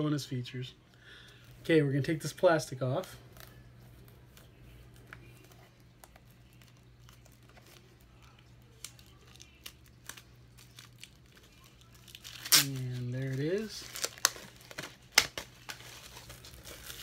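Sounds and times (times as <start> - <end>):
plastic shrink-wrap crinkling: 5.0 - 17.0.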